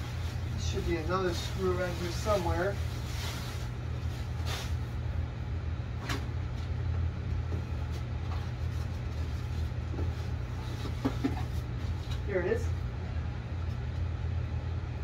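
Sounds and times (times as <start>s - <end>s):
plastic wrap rustling: 0.0s - 5.0s.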